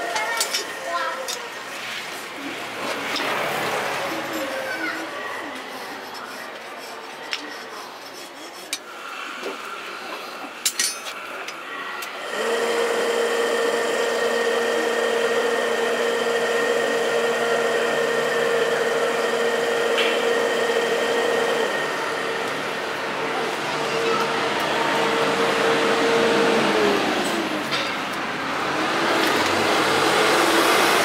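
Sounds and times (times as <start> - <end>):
forge air blower running: 12.1 - 31.0.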